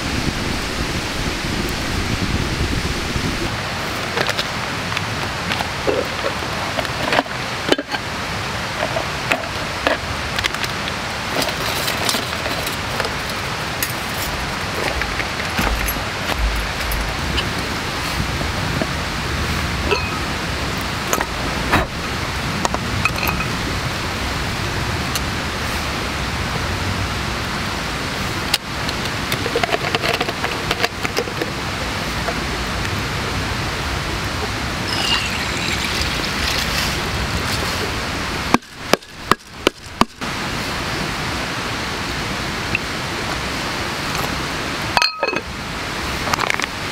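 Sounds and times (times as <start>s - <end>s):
campfire hissing: 0.0s - 29.6s, 31.6s - 46.9s
steady rushing noise: 0.0s - 46.9s
items handled in plastic crate: 8.8s - 17.5s.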